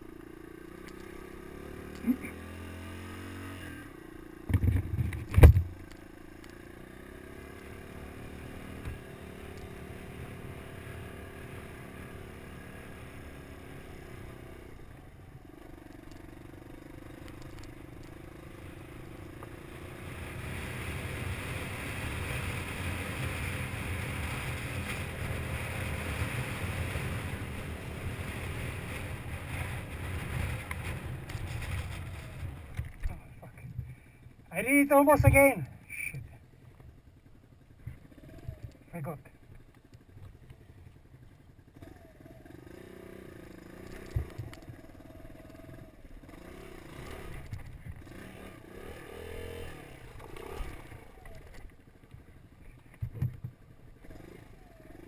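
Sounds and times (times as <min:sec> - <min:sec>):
motorcycle engine running: 0:00.0 - 0:55.0
rattle: 0:30.6 - 0:34.0.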